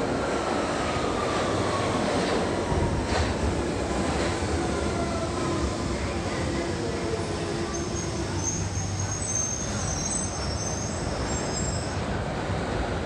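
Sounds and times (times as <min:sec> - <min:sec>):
low train whine: 0:00.0 - 0:13.0
train rumble: 0:00.0 - 0:13.0
high brake squeals: 0:07.7 - 0:12.0.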